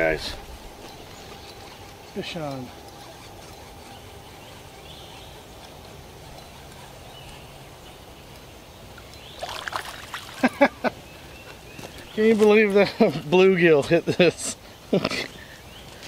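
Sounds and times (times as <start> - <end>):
fish splashing: 9.4 - 10.5.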